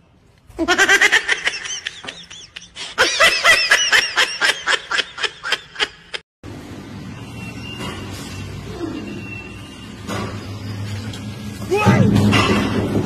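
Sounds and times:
person laughing: 0:00.6 - 0:06.2.

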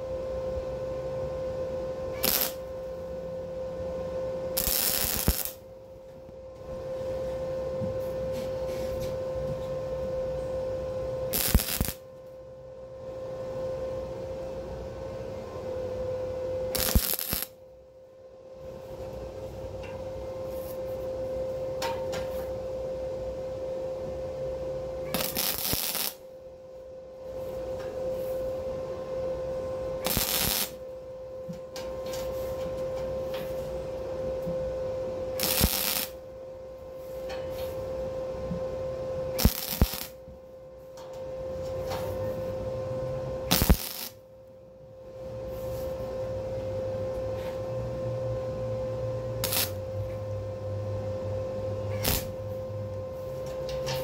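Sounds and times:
steady hum: 0:00.0 - 0:54.0
welder arc crackling: 0:02.1 - 0:02.9, 0:04.6 - 0:05.7, 0:11.3 - 0:12.1, 0:16.7 - 0:17.6, 0:25.1 - 0:26.2, 0:30.0 - 0:30.9, 0:35.4 - 0:36.2, 0:39.4 - 0:40.2, 0:43.5 - 0:44.2, 0:49.4 - 0:49.9, 0:52.0 - 0:52.6.

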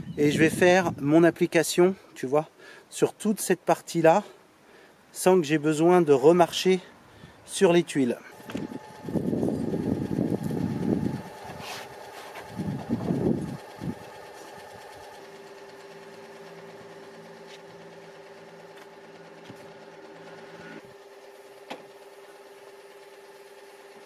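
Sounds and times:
sprayer pump humming: 0:08.3 - 0:24.0.

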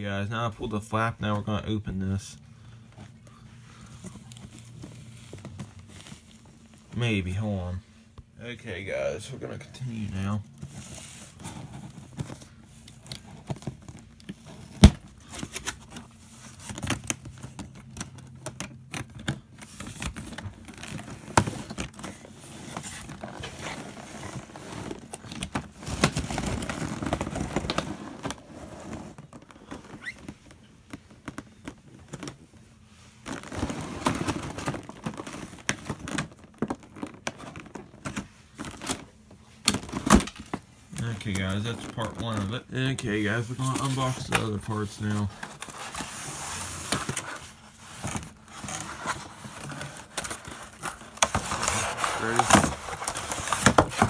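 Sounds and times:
packaging crinkling and scraping: 0:02.9 - 0:07.4, 0:09.4 - 0:54.0
packaging rustling: 0:03.0 - 0:07.0, 0:10.5 - 0:54.0.

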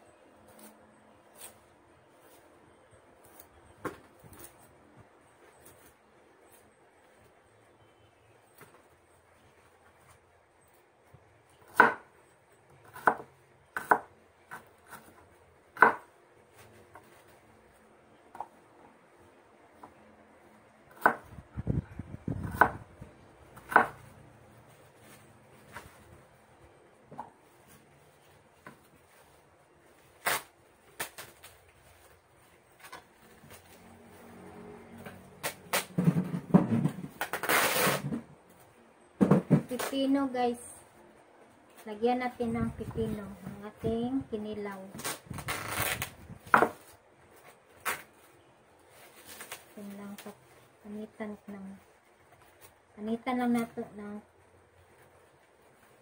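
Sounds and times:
knife chopping on wooden board: 0:12.8 - 0:13.2, 0:15.8 - 0:16.1, 0:23.6 - 0:24.0, 0:46.5 - 0:46.8
wooden chair knocking and scraping: 0:35.9 - 0:37.2, 0:39.2 - 0:39.8.

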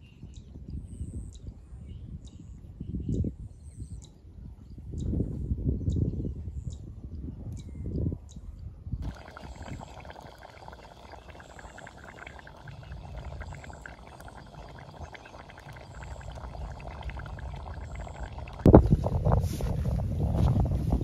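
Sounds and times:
curry bubbling and sizzling: 0:09.0 - 0:18.7.

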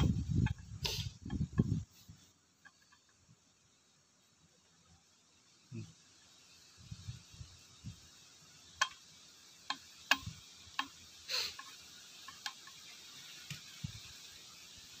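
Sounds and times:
engine parts clicking and tapping: 0:02.6 - 0:03.2, 0:09.6 - 0:14.1.

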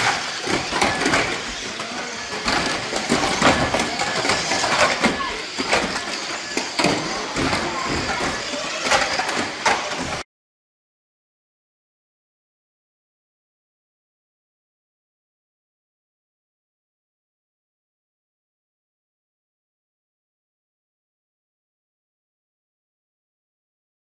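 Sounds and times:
plastic cars knocking together: 0:00.0 - 0:10.2
toy car motors rumbling: 0:00.0 - 0:10.2.

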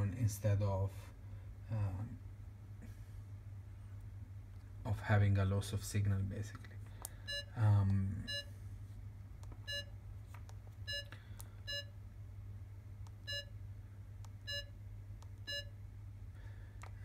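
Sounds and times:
faint low hum: 0:00.0 - 0:17.0
pulse oximeter short beeps: 0:07.2 - 0:07.5, 0:08.3 - 0:08.5, 0:09.7 - 0:09.9, 0:10.9 - 0:11.1, 0:11.7 - 0:11.9, 0:13.3 - 0:13.5, 0:14.5 - 0:14.7, 0:15.5 - 0:15.7.

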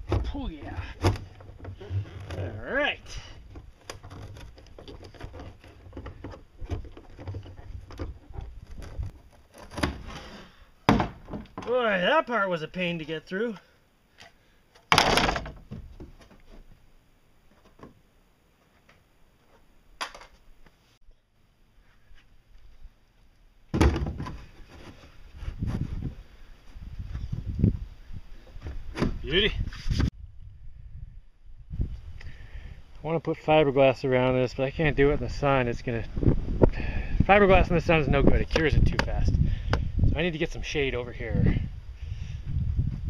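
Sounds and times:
plastic buckets thunking on pontoon: 0:10.9 - 0:11.7, 0:14.9 - 0:16.3, 0:23.7 - 0:24.9.

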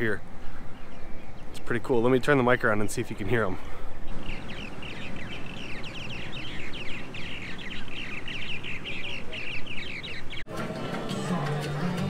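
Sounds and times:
birds chattering: 0:00.0 - 0:10.5
background music: 0:10.5 - 0:12.0
crowd noise: 0:10.5 - 0:12.0.

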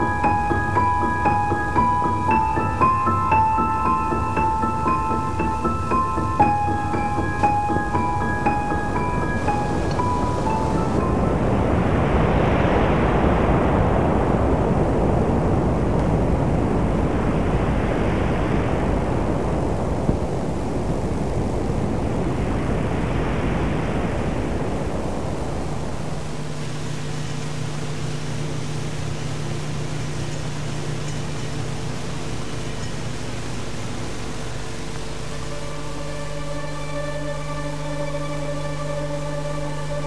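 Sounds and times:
low drone with hum: 0:00.0 - 0:40.0
rushing noise: 0:00.0 - 0:40.0.

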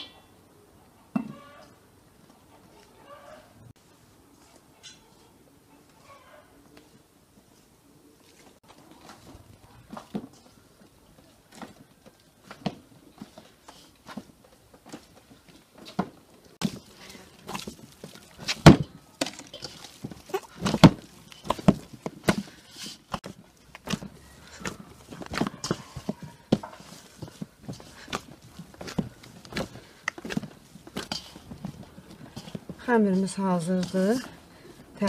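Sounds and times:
dough squelching: 0:16.6 - 0:35.0.

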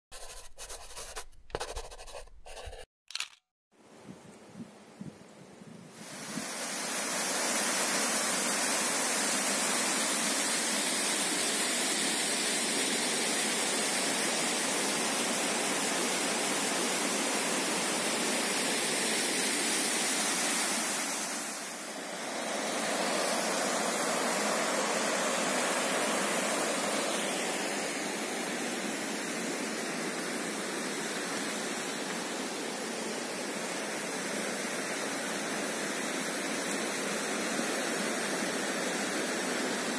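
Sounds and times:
waterfall rushing over rocks: 0:06.0 - 0:33.5.

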